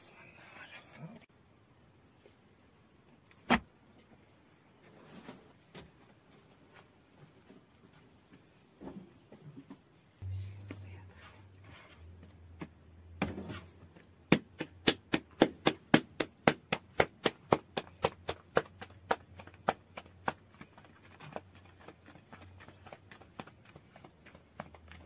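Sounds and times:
dough slapped between palms: 0:14.1 - 0:25.0.

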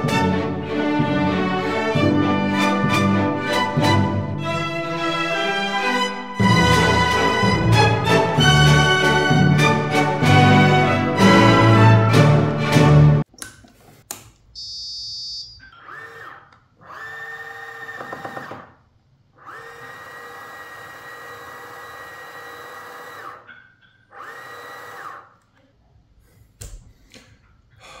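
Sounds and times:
high-pitched beep: 0:14.6 - 0:15.7
telescope motors whining: 0:15.8 - 0:18.7, 0:19.4 - 0:23.5, 0:24.1 - 0:25.4.

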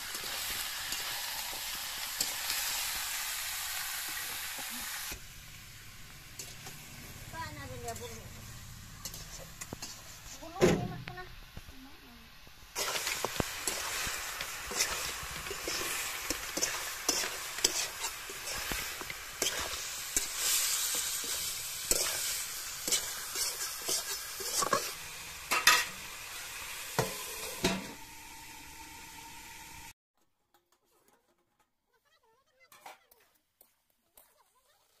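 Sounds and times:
chicken sizzling in hot oil: 0:00.0 - 0:30.0
spoon scraping metal pan: 0:09.0 - 0:10.5, 0:12.8 - 0:26.0.

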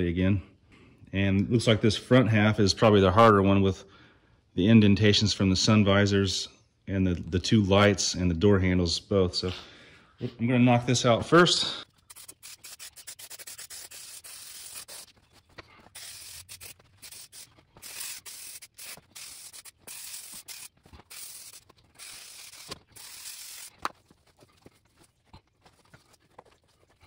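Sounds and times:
aerosol spray hissing: 0:12.1 - 0:15.1, 0:15.9 - 0:23.7.

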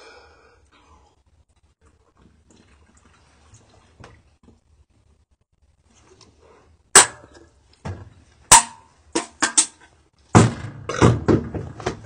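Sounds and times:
aluminium can clanking and crackling: 0:08.5 - 0:09.9.

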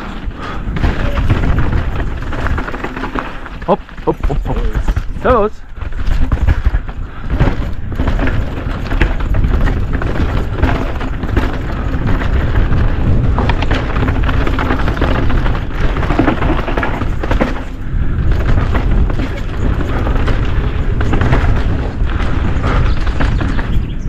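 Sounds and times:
bike rattling over bumps: 0:00.0 - 0:24.0
bike tyres rolling over dirt: 0:00.0 - 0:24.0
wind buffeting microphone: 0:00.0 - 0:24.0.

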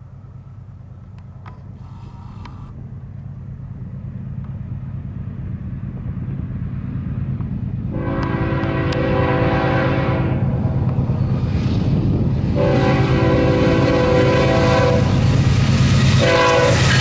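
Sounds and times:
diesel locomotive engine rumble: 0:00.0 - 0:17.0
locomotive air horn chord: 0:07.9 - 0:10.6, 0:12.6 - 0:15.2, 0:16.2 - 0:17.0.

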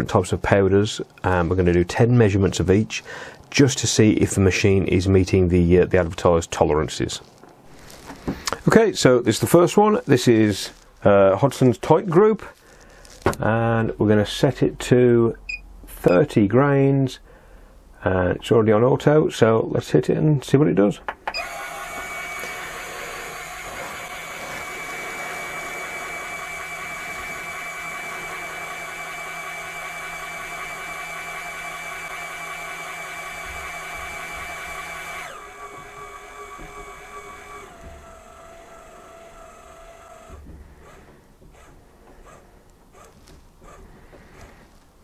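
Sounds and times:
powder dispenser motor whirring: 0:21.4 - 0:41.1.

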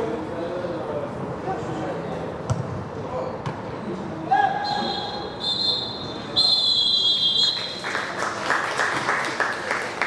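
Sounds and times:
referee's whistle blasts: 0:04.5 - 0:07.8
people clapping: 0:07.3 - 0:10.0.

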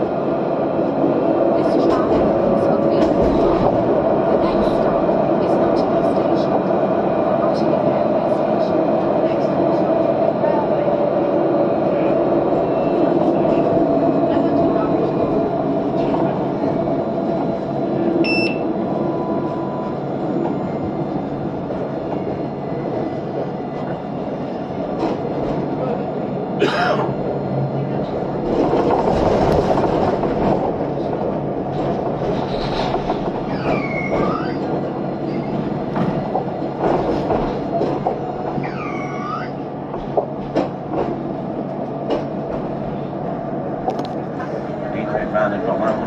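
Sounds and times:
tram rumbling on track: 0:00.0 - 0:46.0
short electronic beep: 0:18.2 - 0:18.6.

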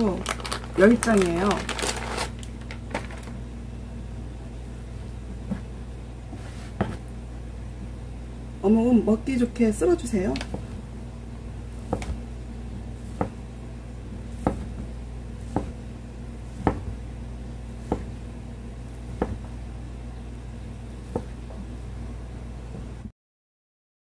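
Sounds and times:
steady low hum: 0:00.0 - 0:23.1.

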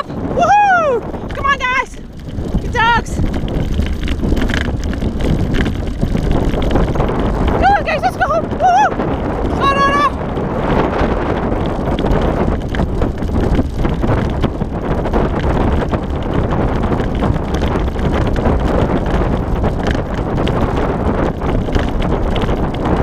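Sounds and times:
rig rattling on trail: 0:00.0 - 0:23.0
wind on microphone: 0:00.0 - 0:23.0.

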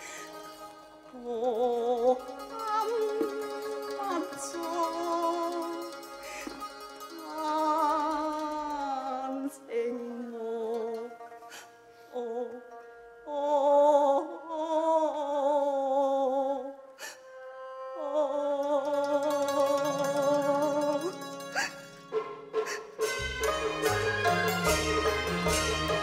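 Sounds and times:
woman singing opera with vibrato: 0:01.0 - 0:06.4, 0:07.1 - 0:11.5, 0:12.1 - 0:21.7
held accompaniment note: 0:23.0 - 0:26.0.

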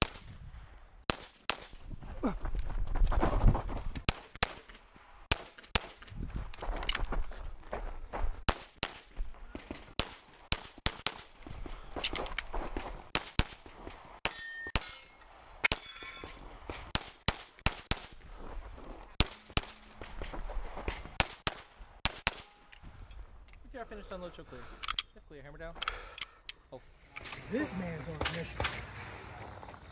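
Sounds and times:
pistol shots: 0:01.1 - 0:01.8, 0:21.2 - 0:22.6
steel targets ringing: 0:14.2 - 0:16.4.

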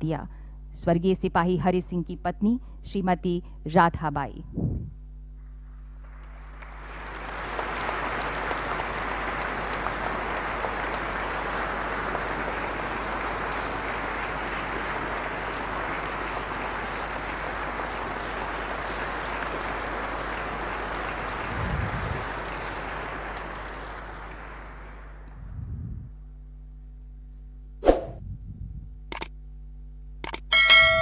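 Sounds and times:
low steady hum: 0:00.0 - 0:31.0
audience applauding: 0:06.0 - 0:25.3.

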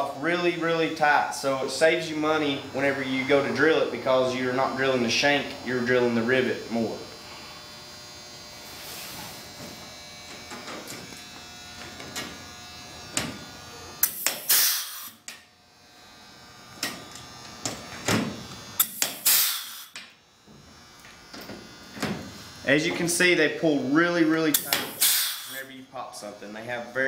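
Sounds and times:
power rivet gun buzzing: 0:07.2 - 0:22.5, 0:24.5 - 0:25.6.

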